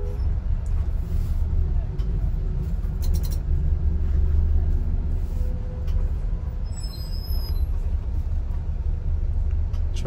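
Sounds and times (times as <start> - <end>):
bus engine rumbling: 0.0 - 10.0.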